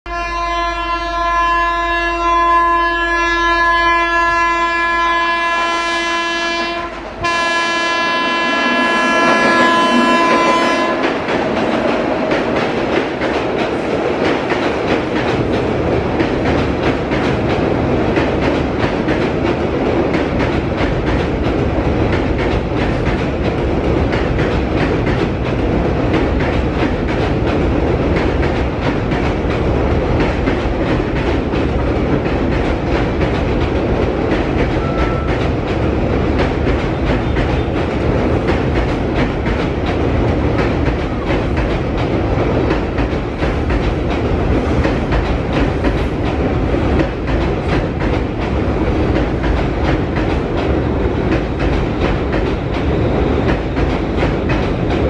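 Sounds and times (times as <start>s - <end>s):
locomotive horn blasts: 0.1s - 11.2s, 34.8s - 35.4s
train rumbling over steel bridge: 0.1s - 55.0s.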